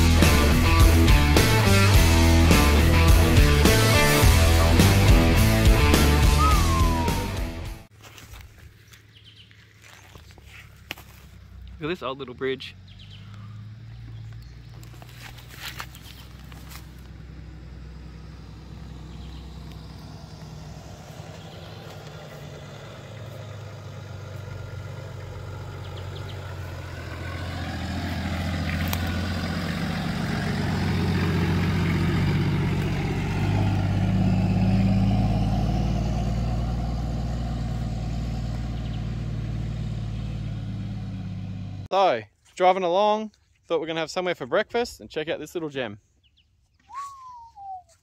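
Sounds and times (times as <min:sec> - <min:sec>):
vehicle engine hum: 0:00.0 - 0:41.9
tyre noise: 0:12.9 - 0:17.6.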